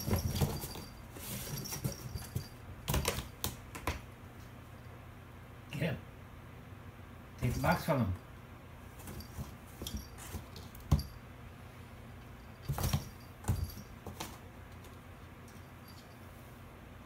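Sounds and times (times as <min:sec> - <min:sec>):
paws batting cardboard box: 0:00.0 - 0:03.9, 0:09.0 - 0:11.1, 0:12.6 - 0:14.4.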